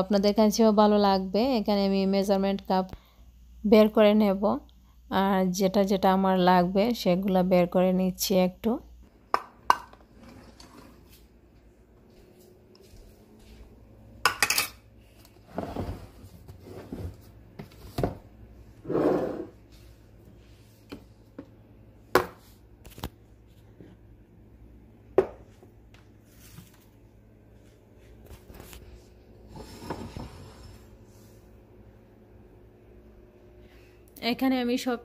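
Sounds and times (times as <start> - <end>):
containers set down on countertop: 25.2 - 25.5.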